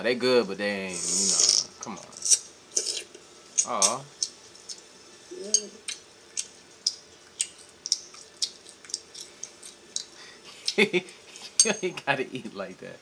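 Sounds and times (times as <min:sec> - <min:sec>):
child eating with mouth clicks: 0:02.0 - 0:11.8.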